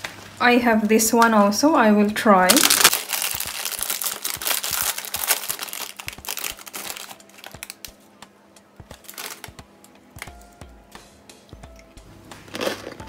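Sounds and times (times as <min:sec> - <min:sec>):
plastic snack bag crinkling: 0:02.5 - 0:08.0, 0:08.9 - 0:09.6.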